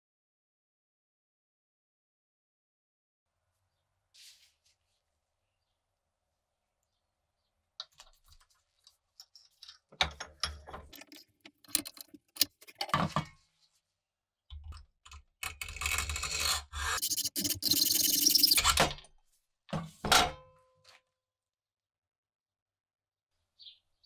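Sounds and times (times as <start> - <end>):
hand tool scraping metal parts: 9.3 - 13.2, 15.5 - 18.9.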